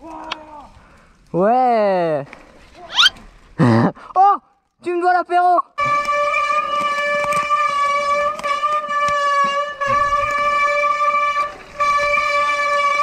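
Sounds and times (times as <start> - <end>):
bike disc brakes squealing: 2.9 - 3.2.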